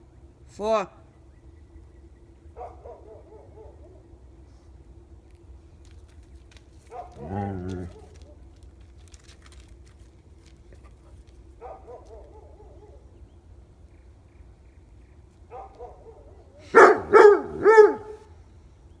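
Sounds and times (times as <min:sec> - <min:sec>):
dog barking: 0:02.6 - 0:04.0, 0:06.9 - 0:07.3, 0:11.6 - 0:13.0, 0:15.5 - 0:18.2.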